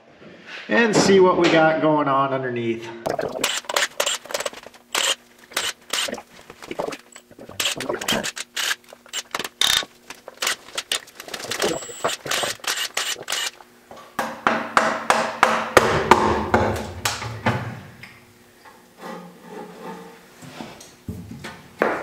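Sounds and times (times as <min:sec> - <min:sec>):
ratchet clicks and knocks: 0:03.4 - 0:13.6.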